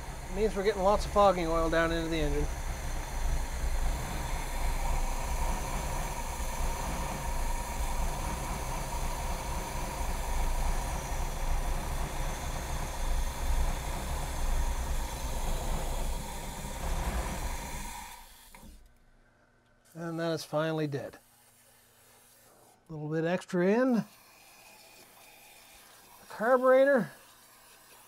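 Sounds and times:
aerosol spray hissing: 0:00.0 - 0:18.8, 0:21.2 - 0:22.7.

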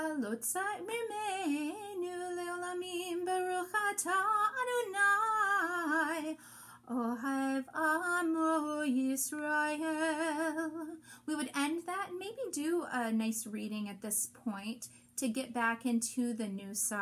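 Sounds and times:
woman singing slowly: 0:00.0 - 0:11.9.

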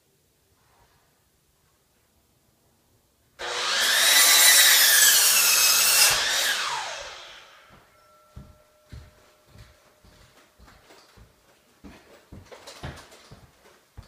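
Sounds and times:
electric miter saw cutting wood: 0:03.4 - 0:07.8.

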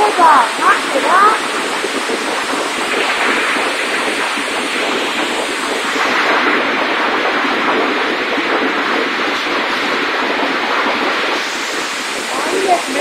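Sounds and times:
heavy rain and hail pelting: 0:00.0 - 0:13.0.

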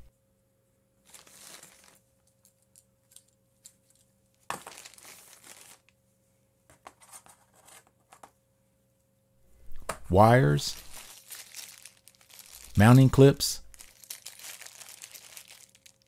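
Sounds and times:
plastic bags crinkling: 0:01.0 - 0:05.9, 0:10.7 - 0:16.0
cables being handled: 0:01.0 - 0:06.0, 0:10.7 - 0:16.0.

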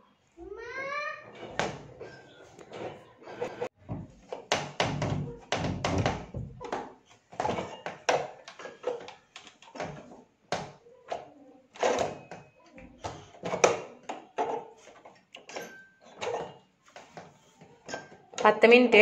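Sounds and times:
knocks taps and thuds: 0:03.8 - 0:10.8.

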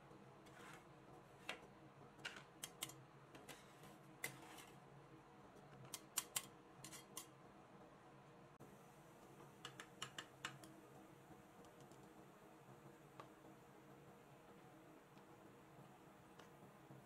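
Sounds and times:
metal spatulas scraping and tapping: 0:00.4 - 0:04.8, 0:05.8 - 0:07.3.

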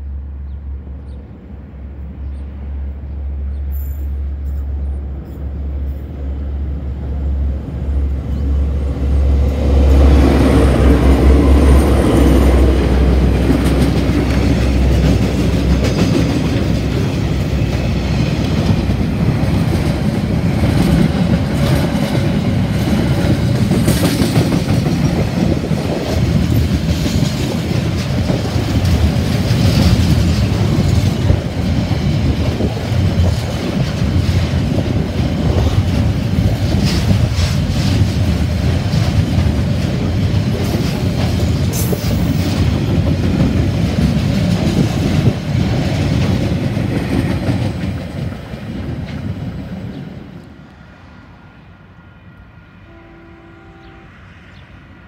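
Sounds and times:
freight train wheels rumbling: 0:00.0 - 0:55.0.

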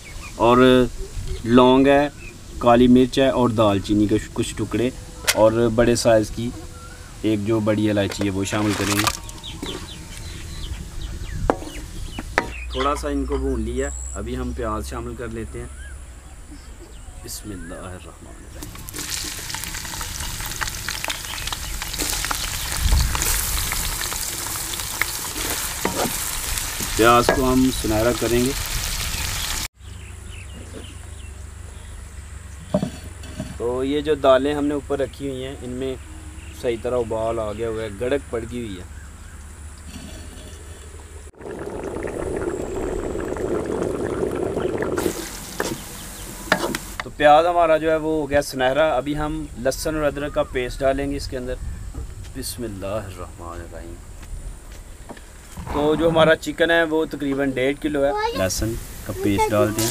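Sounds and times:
lentils boiling and bubbling: 0:08.1 - 0:11.2, 0:18.6 - 0:29.7, 0:40.6 - 0:47.1, 0:58.2 - 0:59.9
onions sizzling in hot oil: 0:18.6 - 0:29.7, 0:43.0 - 0:47.0, 0:58.1 - 0:59.9
wooden spoon stirring: 0:23.2 - 0:27.6.

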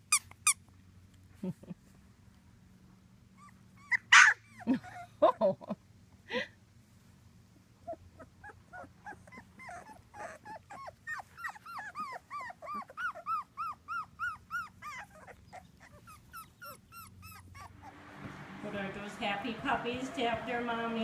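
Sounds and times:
puppy squeaking: 0:00.0 - 0:00.6, 0:03.4 - 0:05.1, 0:07.9 - 0:17.9.

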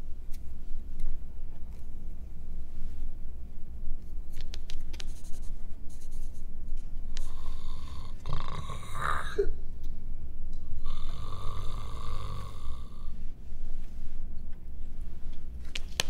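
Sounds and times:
man snoring: 0:07.2 - 0:09.5, 0:10.8 - 0:13.1.

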